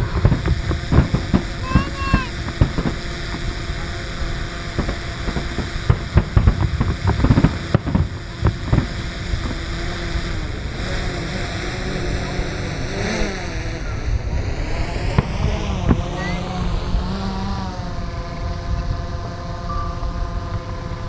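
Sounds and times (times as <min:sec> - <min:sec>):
distant fireworks booming: 0:00.0 - 0:11.6, 0:14.2 - 0:16.8
steady hum: 0:00.0 - 0:21.0.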